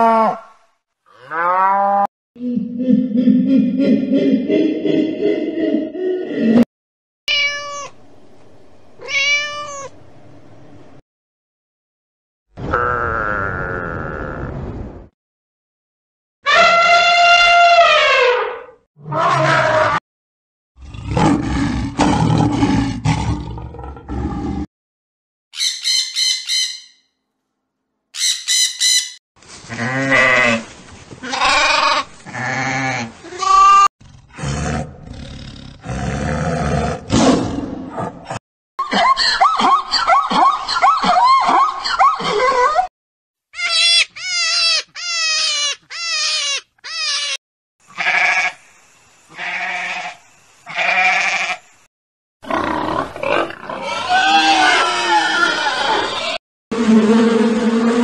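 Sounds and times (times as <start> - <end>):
animal cries: 7.3 - 8.0, 9.0 - 9.9, 43.6 - 48.6, 49.4 - 50.1, 50.7 - 51.6, 53.6 - 56.4
parrot squawking: 25.6 - 27.0, 28.2 - 29.2, 43.6 - 47.4
bleating calls: 29.7 - 33.9, 43.6 - 48.6, 49.3 - 51.6, 53.8 - 56.4.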